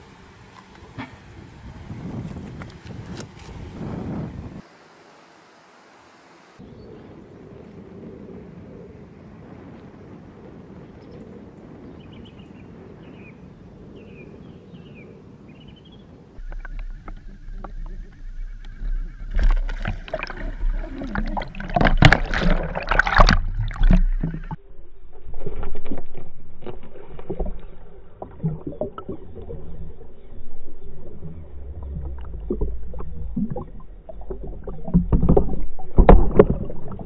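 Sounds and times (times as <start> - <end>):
water splashing and sloshing: 16.4 - 37.0.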